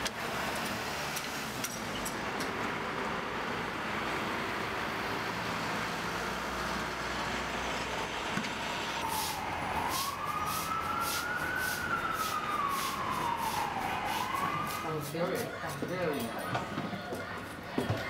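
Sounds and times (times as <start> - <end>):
city traffic noise: 0.0 - 18.0
emergency vehicle siren wailing: 7.6 - 16.6.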